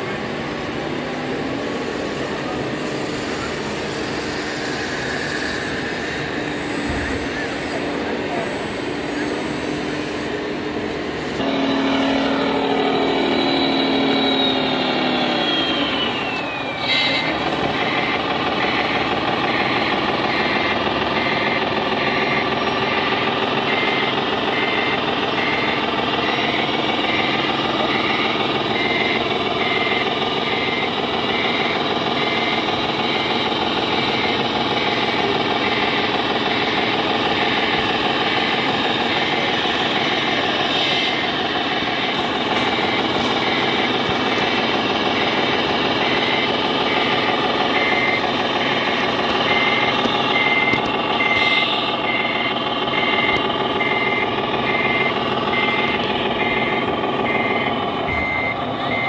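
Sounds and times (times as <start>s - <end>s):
simulated diesel engine: 0.0s - 59.0s
reversing beeper: 11.0s - 59.0s
falling whistle: 11.5s - 18.0s.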